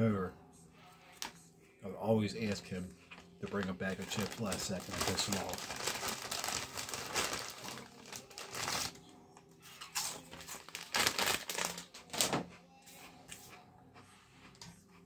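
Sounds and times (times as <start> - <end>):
chip bag crinkling: 3.1 - 9.0, 9.9 - 12.4.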